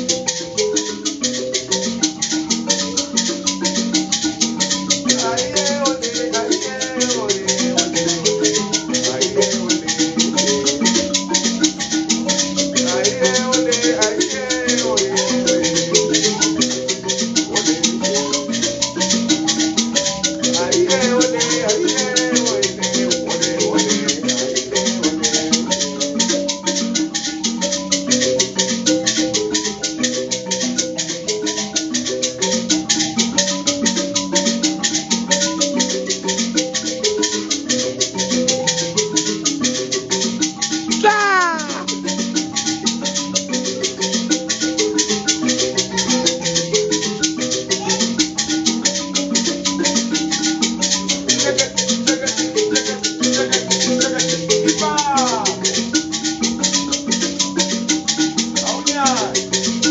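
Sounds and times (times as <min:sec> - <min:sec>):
gourd rattle shaking: 0:00.0 - 0:59.9
mbira plucking: 0:00.0 - 0:59.9.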